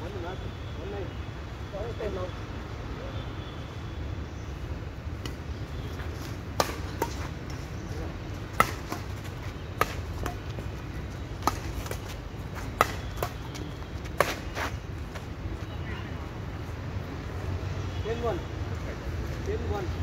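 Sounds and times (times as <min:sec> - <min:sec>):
racquet hitting shuttlecock: 0:06.5 - 0:07.6, 0:08.5 - 0:09.2, 0:09.8 - 0:10.6, 0:11.4 - 0:12.1, 0:12.7 - 0:14.7.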